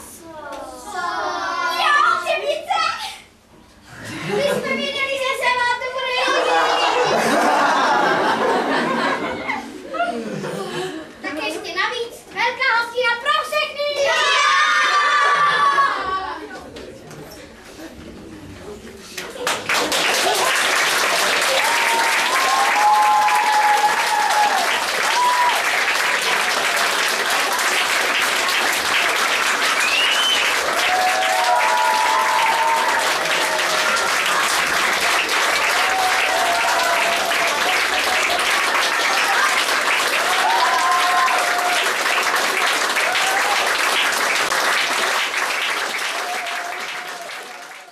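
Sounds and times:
cheering calls: 0:14.0 - 0:16.4, 0:21.1 - 0:28.0, 0:29.7 - 0:44.5, 0:46.0 - 0:47.9
audience applauding: 0:19.2 - 0:47.9.

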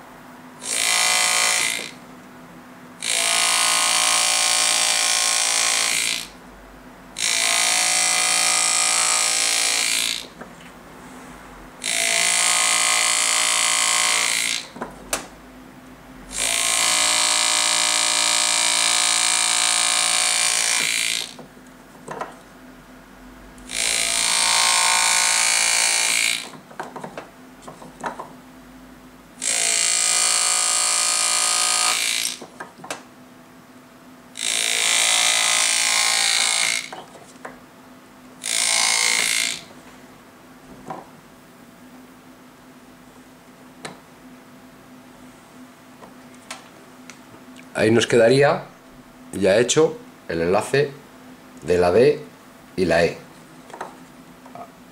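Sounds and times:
pneumatic graver buzzing: 0:00.6 - 0:02.0, 0:03.0 - 0:06.4, 0:07.2 - 0:10.4, 0:11.8 - 0:14.8, 0:16.3 - 0:21.4, 0:23.6 - 0:26.6, 0:29.4 - 0:32.5, 0:34.4 - 0:37.1, 0:38.4 - 0:39.7.

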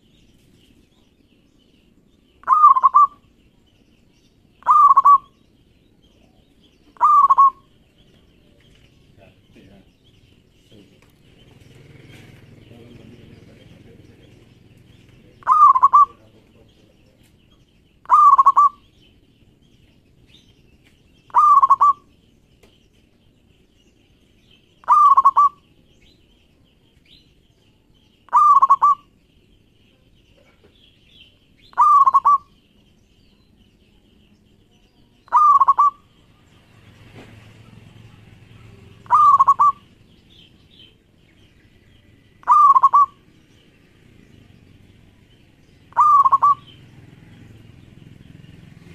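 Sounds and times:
dove cooing: 0:02.4 - 0:03.3, 0:04.6 - 0:05.4, 0:07.0 - 0:07.7, 0:15.2 - 0:16.4, 0:18.0 - 0:18.9, 0:21.3 - 0:22.1, 0:24.8 - 0:25.7, 0:28.3 - 0:29.1, 0:31.7 - 0:32.6, 0:35.3 - 0:36.2, 0:37.7 - 0:40.1, 0:42.4 - 0:43.3, 0:45.8 - 0:46.9.

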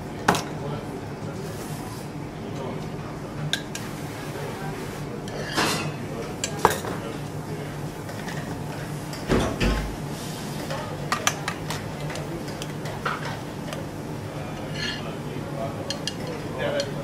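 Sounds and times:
metal kitchenware clinking: 0:14.7 - 0:15.1.

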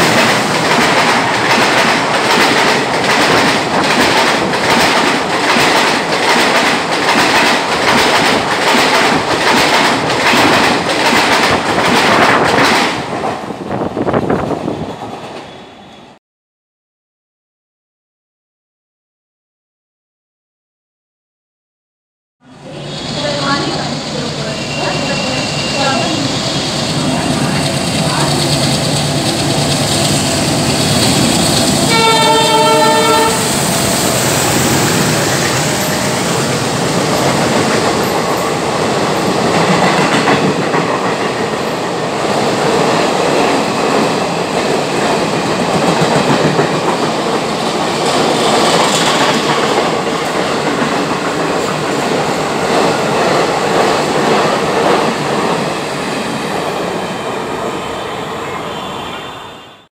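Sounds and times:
train coaches clattering on track: 0:00.0 - 0:16.2, 0:22.5 - 0:59.7
train horn blast: 0:30.2 - 0:34.5, 0:57.8 - 0:59.9.

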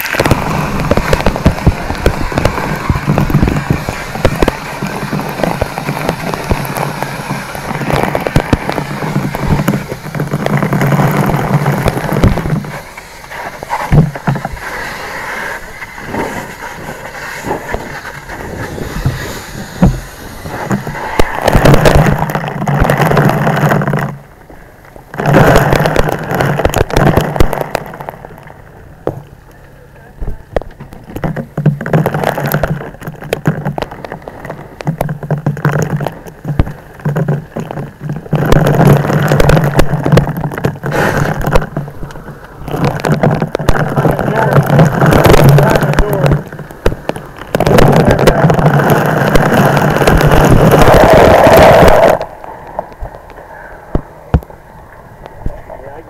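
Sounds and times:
low rushing noise: 0:00.0 - 0:23.5
fire crackling and popping: 0:00.0 - 0:56.0.

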